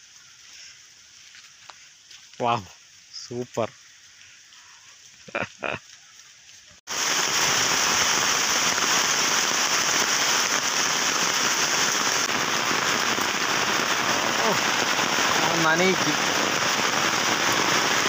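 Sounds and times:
heavy rain on water: 6.9s - 18.0s.

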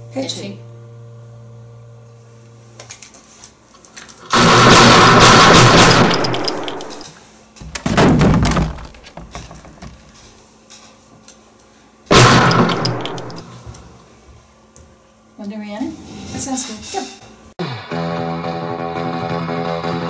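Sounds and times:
loud gunshot-like bangs: 4.3s - 7.0s, 12.1s - 13.4s.

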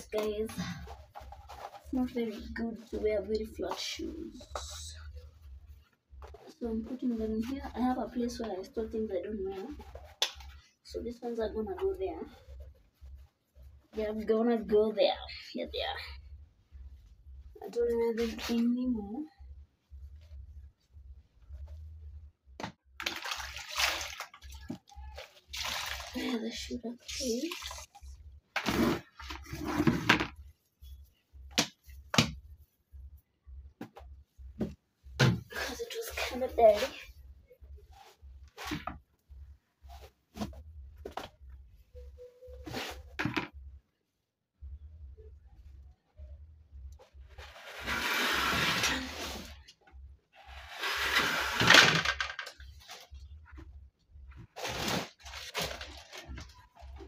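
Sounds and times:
rustling scrape: 0.4s - 3.2s, 47.0s - 49.6s, 54.3s - 57.0s.

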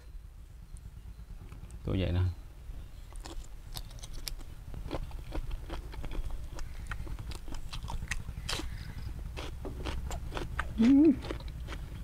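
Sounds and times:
steady low hum: 0.0s - 12.0s
chewing with wet crunches: 3.0s - 12.0s.

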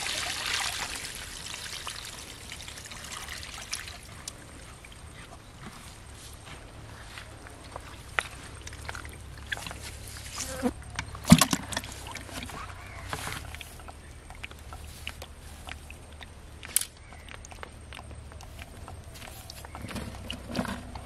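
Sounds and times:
fish slapping in plastic bucket: 11.1s - 13.8s.

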